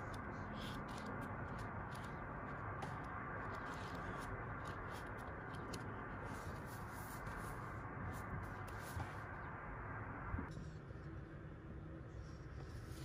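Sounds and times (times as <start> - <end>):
book pages turning: 0.0 - 9.5.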